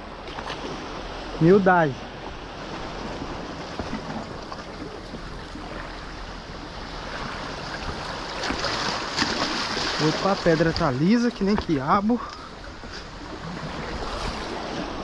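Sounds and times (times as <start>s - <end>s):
sea washing against rocky shore: 0.6s - 15.0s.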